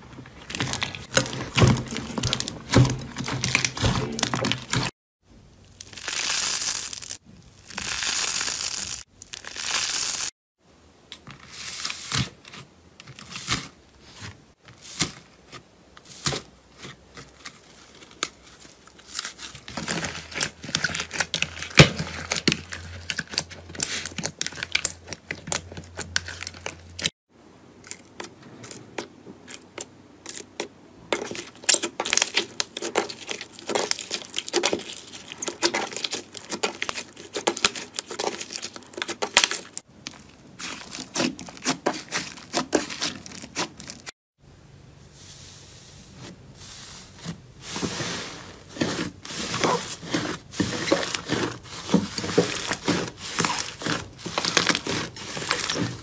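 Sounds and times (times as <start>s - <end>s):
slime crackling and popping: 5.7s - 10.3s, 31.3s - 43.9s.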